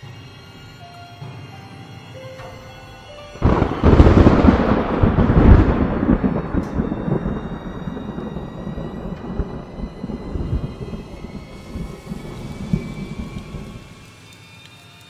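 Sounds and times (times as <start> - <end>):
dark eerie background music: 0.0 - 15.0
loud rumbling boom: 3.4 - 13.9.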